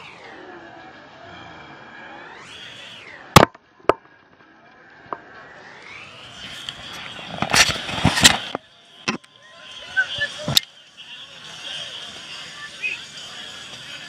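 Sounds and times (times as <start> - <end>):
rubbing scraping rush: 6.4 - 8.6.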